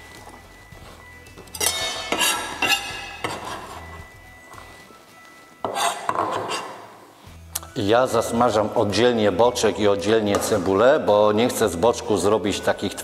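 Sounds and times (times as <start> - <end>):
bowl and knife clattering on steel: 1.6 - 3.4.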